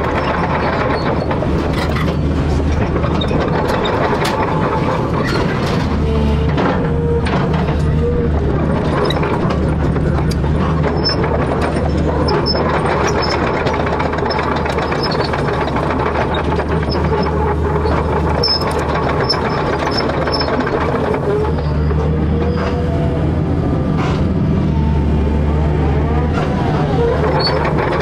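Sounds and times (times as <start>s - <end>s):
diesel engine running: 0.0s - 28.0s.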